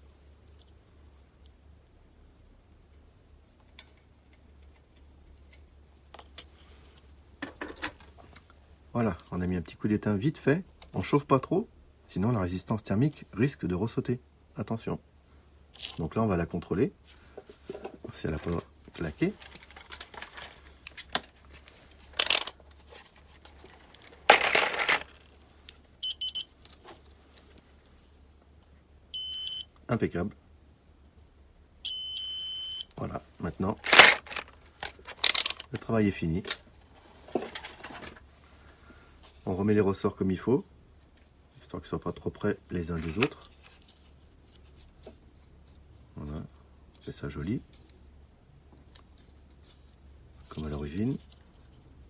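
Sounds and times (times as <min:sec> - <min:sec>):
low steady hum: 0:00.0 - 0:52.0
clattering rattles: 0:24.1 - 0:25.3, 0:33.8 - 0:35.7
short high beeps: 0:26.0 - 0:26.5, 0:29.2 - 0:29.7, 0:31.8 - 0:32.9.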